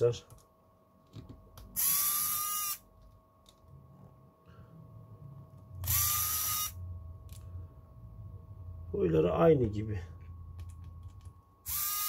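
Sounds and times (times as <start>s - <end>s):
electric screwdriver whining: 1.8s - 2.8s, 5.8s - 6.8s, 11.7s - 12.0s.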